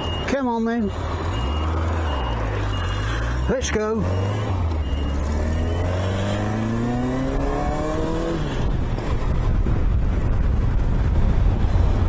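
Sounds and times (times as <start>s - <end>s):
wind and road noise: 0.0s - 12.0s
motorcycle engine accelerating: 2.6s - 12.0s.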